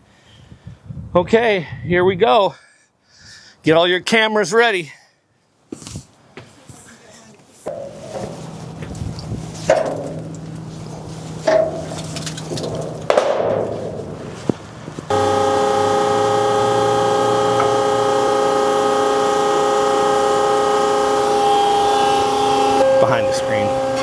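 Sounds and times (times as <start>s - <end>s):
hydraulic pump whining: 15.1s - 24.0s.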